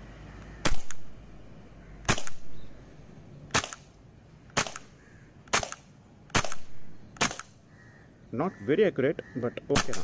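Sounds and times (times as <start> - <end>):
airsoft pistol shots: 0.6 - 1.1, 2.0 - 2.6, 3.5 - 3.9, 4.5 - 7.6, 9.7 - 10.0.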